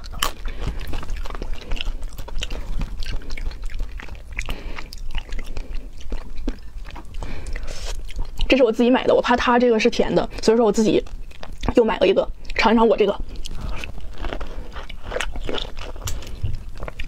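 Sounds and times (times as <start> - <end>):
person chewing: 0.0 - 17.0.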